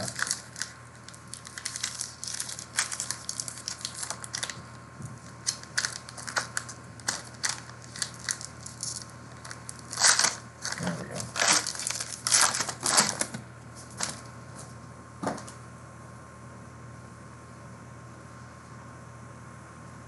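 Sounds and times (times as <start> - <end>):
foil wrapper crinkling and tearing: 0.0 - 14.3.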